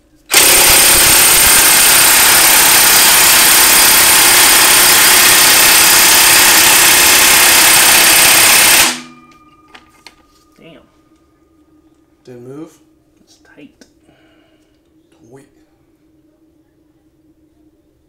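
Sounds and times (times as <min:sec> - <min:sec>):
impact wrench hammering: 0:00.3 - 0:10.2.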